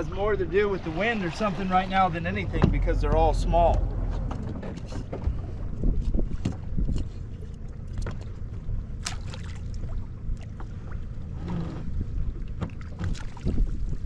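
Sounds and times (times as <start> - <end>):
wind buffeting microphone: 0.0 - 7.7, 10.8 - 14.0
water slapping boat hull: 0.0 - 14.0
splashes and drips: 4.4 - 11.1, 12.3 - 14.0.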